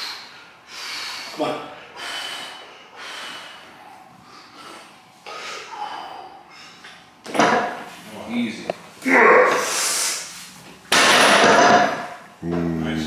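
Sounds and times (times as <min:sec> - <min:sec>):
man breathing forcefully: 0:00.0 - 0:06.8.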